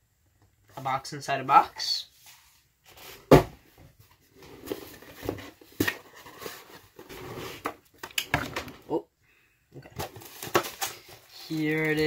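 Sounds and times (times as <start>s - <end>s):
cardboard rustling and scraping: 2.2s - 8.9s, 10.0s - 12.0s.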